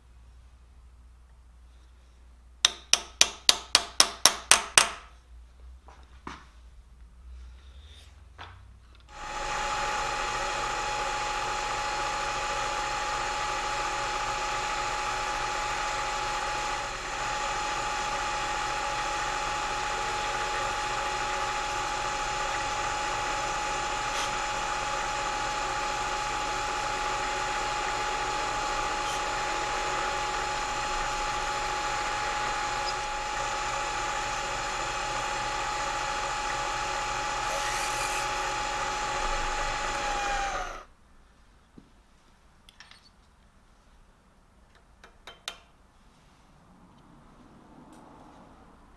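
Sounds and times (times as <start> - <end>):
milling machine spindle whining: 9.1 - 40.9.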